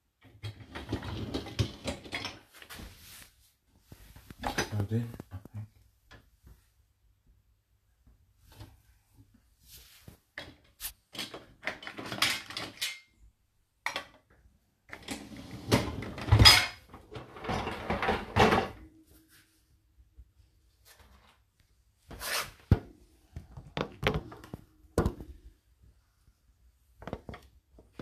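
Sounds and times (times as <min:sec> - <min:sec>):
dishes clinking in dishwasher rack: 0:15.8 - 0:18.8.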